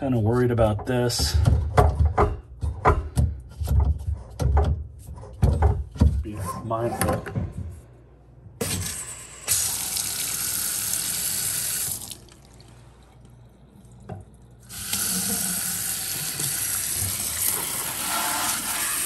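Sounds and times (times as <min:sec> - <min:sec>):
water running into a steel sink: 0:09.5 - 0:12.7, 0:14.6 - 0:19.0.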